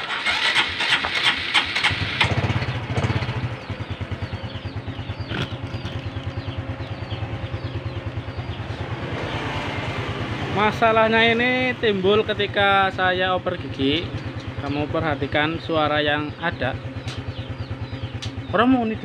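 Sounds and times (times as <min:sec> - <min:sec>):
motorcycle engine starting and idling: 0:00.0 - 0:19.0.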